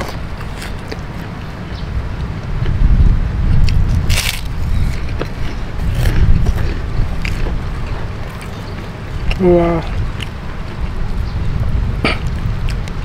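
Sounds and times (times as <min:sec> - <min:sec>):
eating crunches and clicks: 0:00.0 - 0:01.6, 0:03.5 - 0:11.2, 0:12.0 - 0:13.0
wind buffeting microphone: 0:00.0 - 0:13.0
cracker crunch being bitten: 0:03.5 - 0:08.6.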